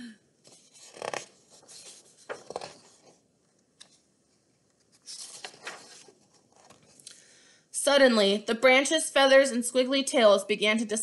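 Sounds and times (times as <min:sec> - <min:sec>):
paper pages rustling: 0:00.4 - 0:03.2, 0:04.7 - 0:07.0
page being turned: 0:00.5 - 0:03.2, 0:04.8 - 0:07.0.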